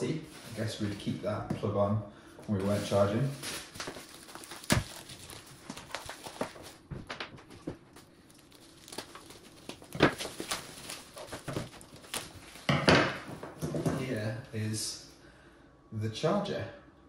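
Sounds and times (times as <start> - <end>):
plastic packaging rustling: 0.3 - 1.3, 2.5 - 14.2.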